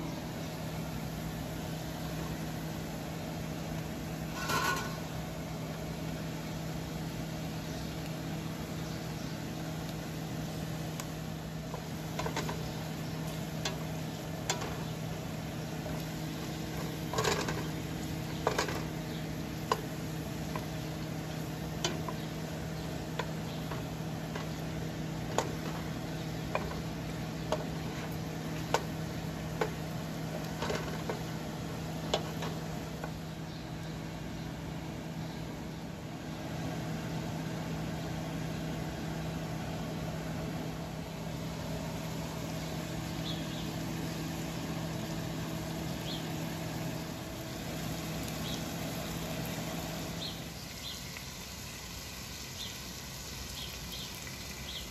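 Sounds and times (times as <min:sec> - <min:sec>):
chicken and onions sizzling in pot: 0:00.0 - 0:35.2, 0:41.0 - 0:54.9
steady hum: 0:00.0 - 0:50.8
utensil scraping against pot: 0:04.3 - 0:05.1, 0:16.5 - 0:19.0, 0:23.2 - 0:31.4.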